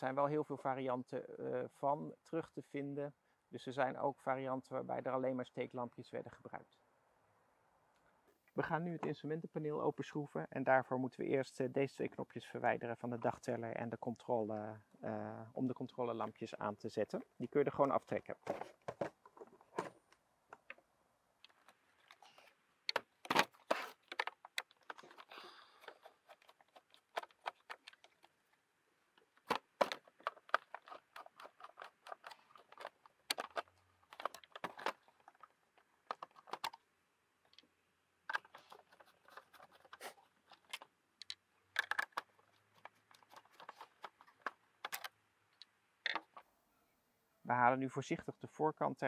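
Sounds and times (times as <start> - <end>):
plastic and metal housing handled: 17.1 - 36.8, 38.2 - 46.4.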